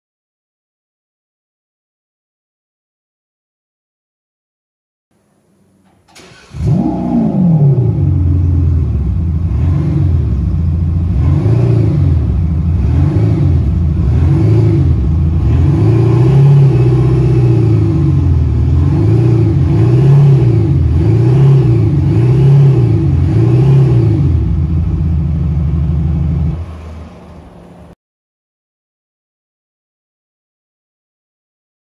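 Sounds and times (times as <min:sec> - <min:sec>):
synthetic engine note revving: 0:06.1 - 0:26.8.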